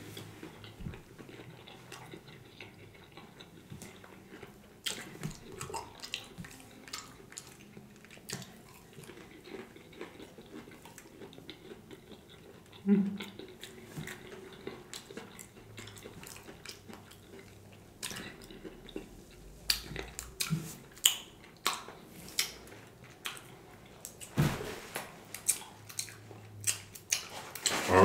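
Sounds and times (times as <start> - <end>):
wet chewing: 0.2 - 24.3, 25.3 - 28.0
lip smacks: 18.0 - 24.3, 25.3 - 27.7.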